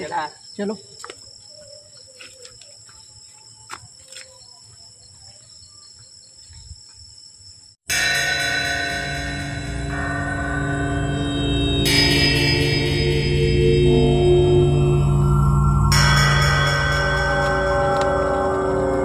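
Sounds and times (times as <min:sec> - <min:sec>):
crickets trilling: 0:00.0 - 0:19.0
faint footsteps: 0:00.9 - 0:07.2, 0:16.7 - 0:19.0
music drone of held tones: 0:07.9 - 0:19.0.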